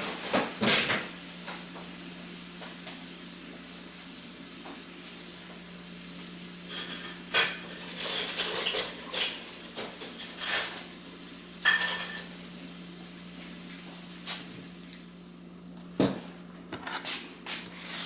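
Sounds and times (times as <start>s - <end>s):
utensils and dishes clattering: 6.6s - 12.3s.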